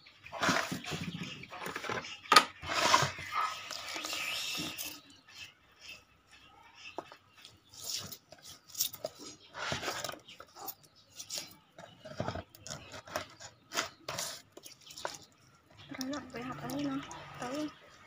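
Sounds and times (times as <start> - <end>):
wet rubbing and squelching: 0.2 - 5.1.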